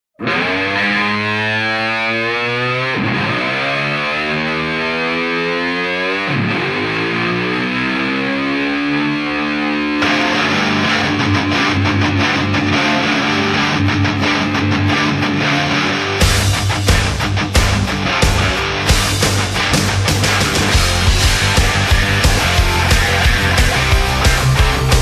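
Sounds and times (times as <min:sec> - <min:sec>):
distorted electric guitar chords: 0:00.2 - 0:25.0
rock drum beats: 0:10.0 - 0:25.0.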